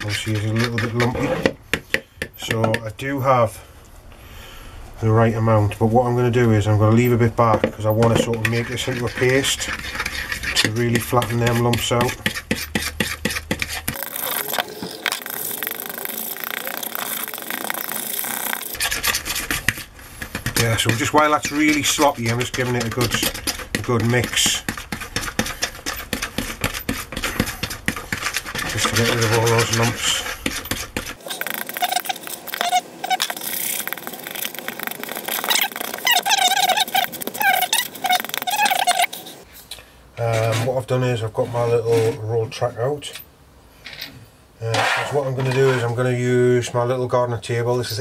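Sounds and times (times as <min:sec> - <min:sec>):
spoon scraping plastic bowl: 0:00.0 - 0:01.6, 0:07.0 - 0:39.5
short squeaks: 0:31.2 - 0:39.4.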